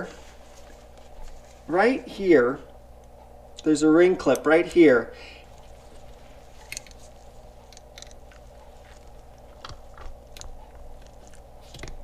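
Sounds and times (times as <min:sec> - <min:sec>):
faint hum: 0:00.0 - 0:12.0
metallic clicks and scrapes: 0:06.6 - 0:12.0.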